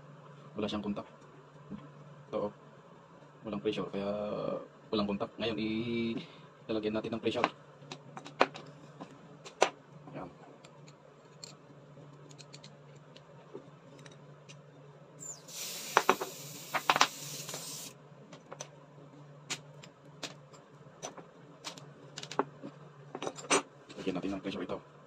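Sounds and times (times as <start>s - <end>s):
pressurised air hissing: 15.2s - 18.0s.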